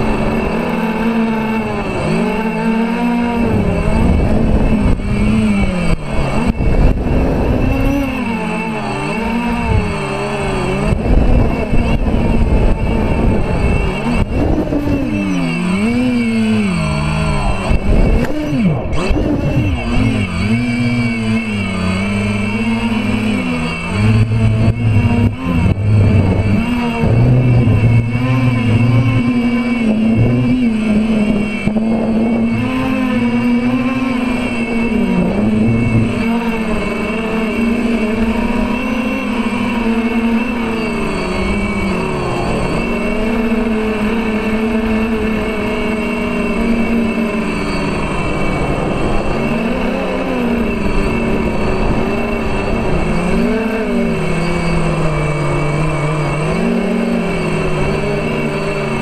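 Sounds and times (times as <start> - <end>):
quadcopter motors droning: 0.0 - 59.0
wind on microphone: 0.0 - 59.0.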